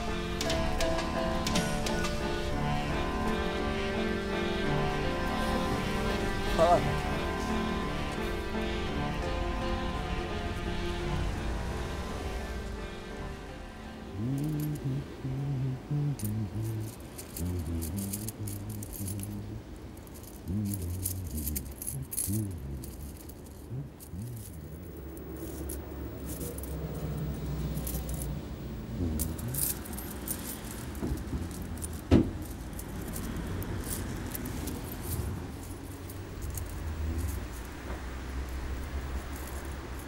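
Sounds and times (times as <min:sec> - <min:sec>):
metal objects jingling in pouch: 0:16.2 - 0:37.8, 0:38.4 - 0:40.0.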